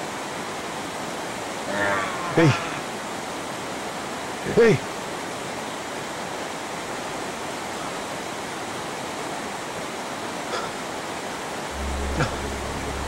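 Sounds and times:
steady rushing hiss: 0:11.1 - 0:13.0.

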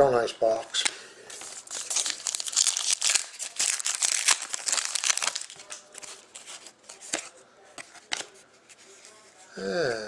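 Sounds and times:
plastic wrapping crinkling: 0:01.3 - 0:07.3.

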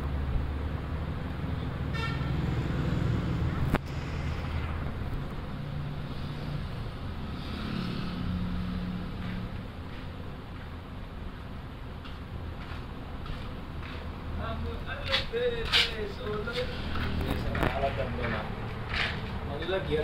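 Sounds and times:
road traffic: 0:00.0 - 0:20.0
vehicle horn toot: 0:01.9 - 0:02.4.

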